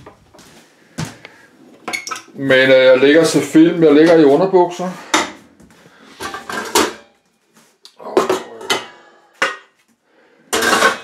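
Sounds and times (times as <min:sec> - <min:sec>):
metal pot clattering: 0:06.2 - 0:07.2, 0:10.5 - 0:11.0.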